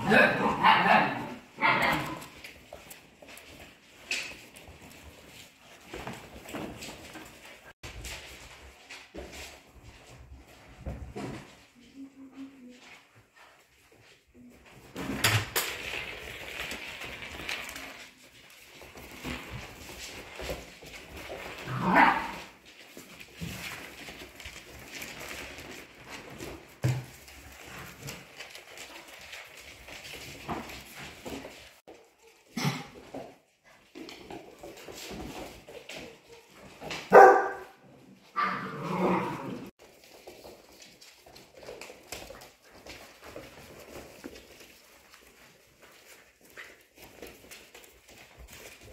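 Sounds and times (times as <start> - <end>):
dogs barking: 0.0 - 2.2, 37.1 - 37.8
puppies scuffling and rustling: 0.0 - 48.9.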